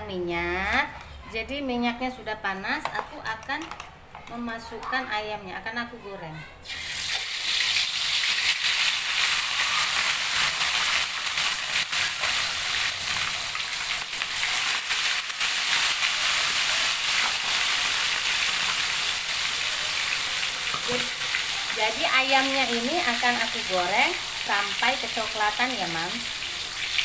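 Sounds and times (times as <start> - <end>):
chicken deep-frying in oil: 6.6 - 27.0.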